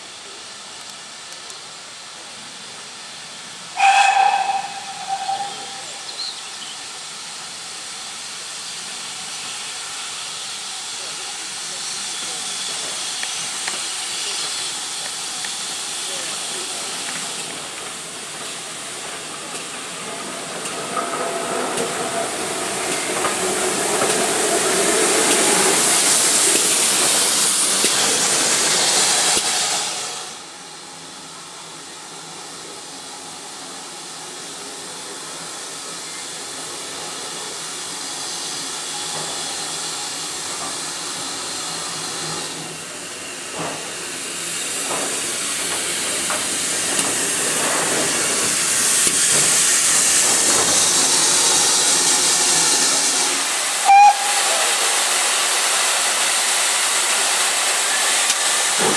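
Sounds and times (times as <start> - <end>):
steam locomotive hissing: 0.0 - 58.9.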